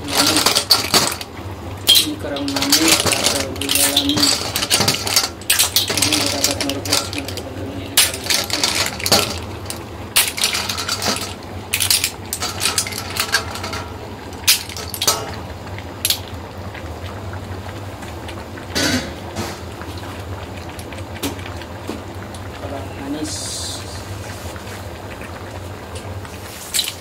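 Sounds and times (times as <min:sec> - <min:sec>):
clams clattering against steel bowl: 0:00.0 - 0:16.4, 0:26.7 - 0:27.0
steady low hum: 0:00.0 - 0:26.5.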